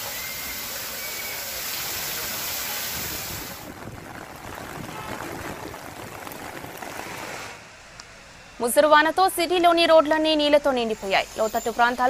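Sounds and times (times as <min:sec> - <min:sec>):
heavy rain pouring: 0:00.0 - 0:07.6.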